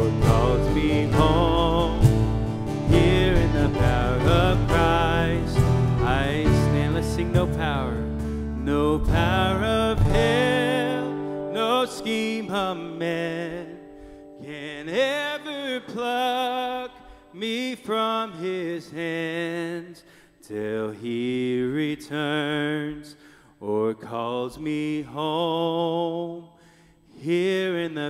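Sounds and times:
worship band with guitars: 0.0s - 17.3s
person singing: 0.0s - 26.4s
cajon: 0.2s - 8.4s.

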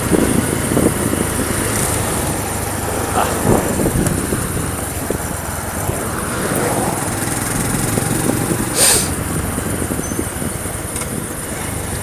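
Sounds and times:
road and wind noise: 0.0s - 12.0s
small motorbike engine running: 0.0s - 12.0s
loud rush of hiss: 8.7s - 9.2s.

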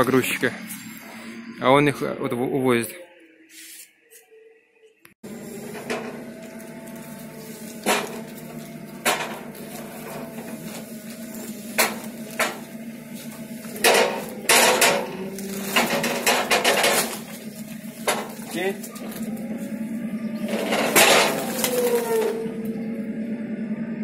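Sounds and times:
engine hum: 0.0s - 3.0s, 5.2s - 24.0s
rattling and rustling bags: 5.3s - 19.8s, 20.5s - 22.6s
metal knocks and clanks: 5.6s - 19.3s, 20.4s - 22.5s.

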